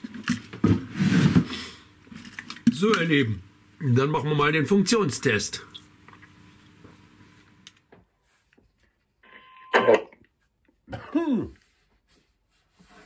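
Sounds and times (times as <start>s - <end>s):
man clearing his throat: 10.9s - 11.6s
man coughing: 10.9s - 11.6s.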